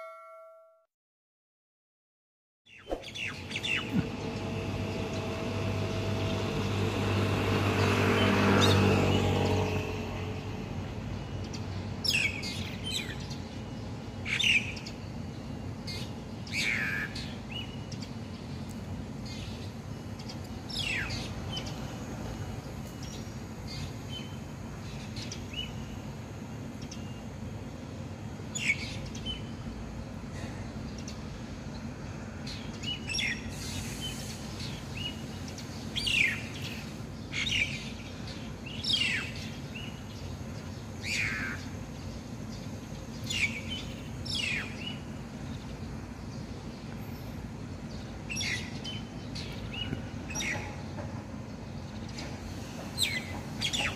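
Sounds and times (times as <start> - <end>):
starling calling: 41.0 - 42.1.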